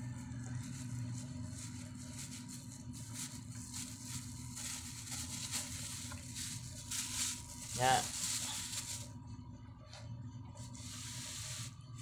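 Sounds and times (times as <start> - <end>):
steady low hum: 0.0 - 12.0
plastic bag crinkling: 0.2 - 9.1.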